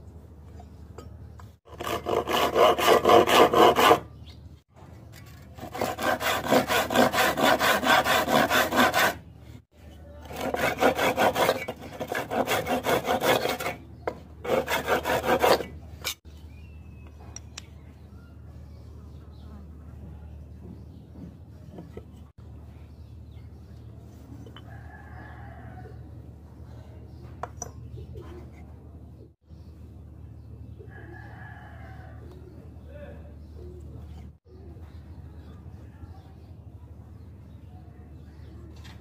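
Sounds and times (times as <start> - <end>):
hand saw cutting wood: 1.7 - 4.1, 5.2 - 9.2, 10.2 - 16.2.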